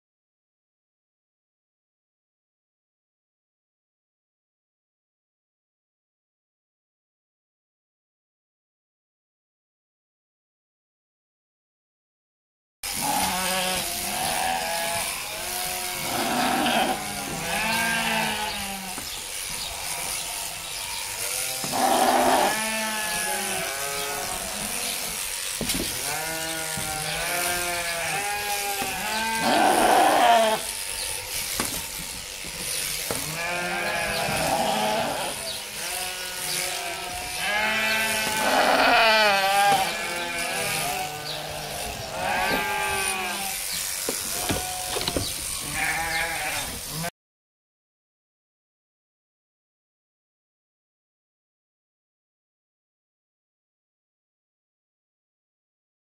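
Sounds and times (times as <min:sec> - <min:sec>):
sheep bleating: 0:12.9 - 0:32.4, 0:33.1 - 0:47.1.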